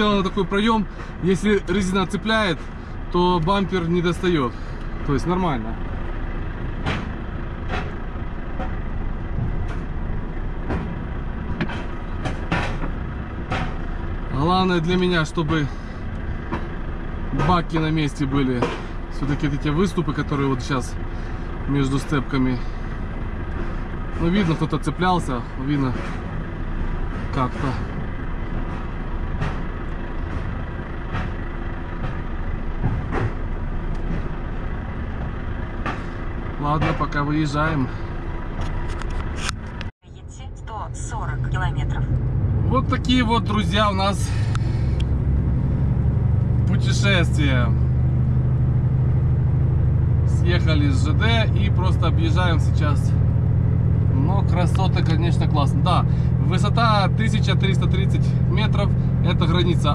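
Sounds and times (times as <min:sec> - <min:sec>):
truck cab rumble: 0:00.0 - 0:59.9
sharp knocks of rolling wheels: 0:06.4 - 0:14.3, 0:25.9 - 0:37.3.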